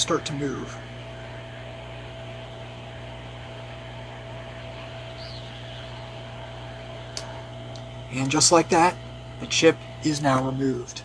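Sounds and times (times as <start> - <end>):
faint constant whine: 0.0 - 11.0
hot-air station airflow hiss: 0.0 - 11.0
low hum: 0.0 - 11.0.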